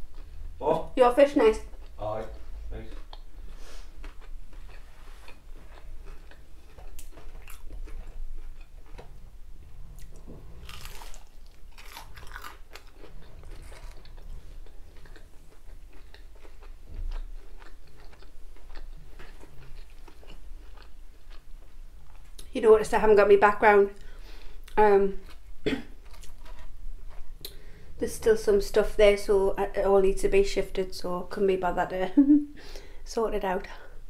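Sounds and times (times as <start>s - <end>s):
crunching batter while chewing: 1.7s - 9.2s, 9.9s - 22.5s, 24.0s - 27.6s.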